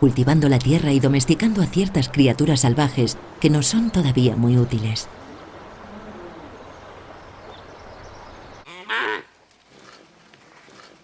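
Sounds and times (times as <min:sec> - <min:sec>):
livestock call: 0:08.6 - 0:09.4.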